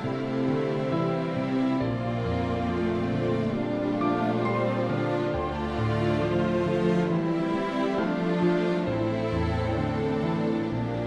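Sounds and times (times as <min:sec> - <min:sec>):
background music with held notes: 0:00.0 - 0:11.0.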